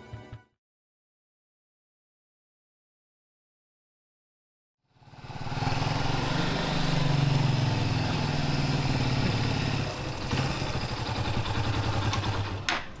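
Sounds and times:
small motorcycle engine: 4.9s - 13.0s.

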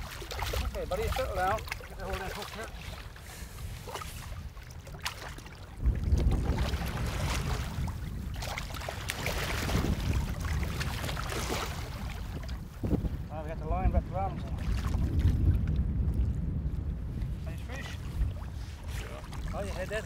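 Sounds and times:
fish splashing in water: 0.0s - 12.6s
wind rumbling on microphone: 0.0s - 20.0s.

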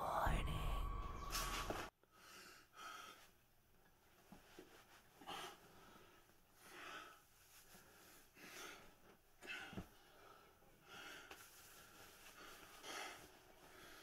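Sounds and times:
whispering: 0.0s - 1.7s
eerie music: 0.0s - 1.9s
man breathing heavily: 2.0s - 3.4s, 5.2s - 14.0s.

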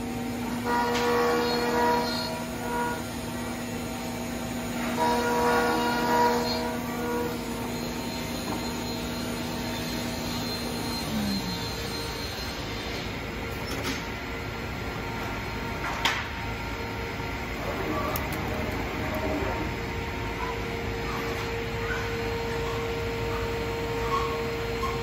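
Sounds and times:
router spindle whine: 0.0s - 15.7s
router bit cutting wood: 8.3s - 12.5s.

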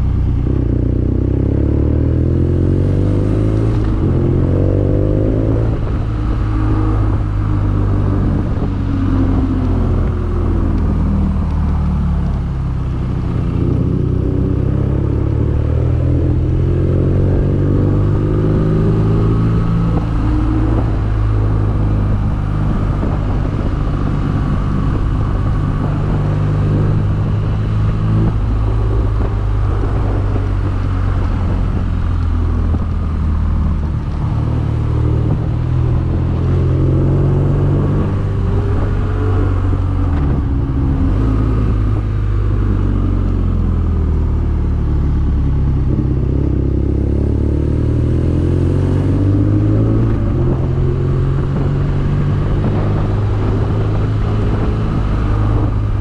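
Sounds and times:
motorcycle engine revving: 0.0s - 56.0s
wind and road noise: 0.0s - 56.0s.

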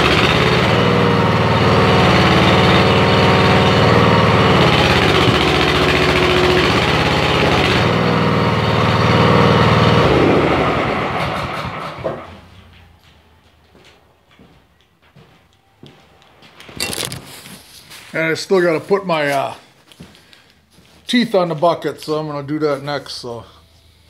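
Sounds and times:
small gasoline engine running: 0.0s - 12.4s.

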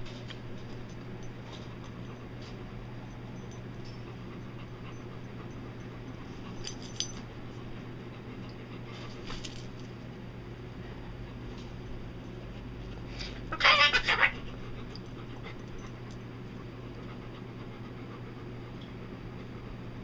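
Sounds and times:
low hum: 0.0s - 13.5s
dog collar tags jingling: 0.5s - 7.4s, 9.3s - 10.0s, 14.9s - 16.3s.

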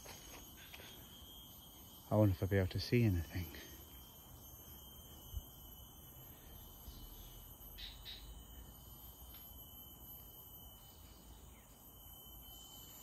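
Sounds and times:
high insect tone: 0.0s - 13.0s
bird chirps: 6.3s - 9.4s.

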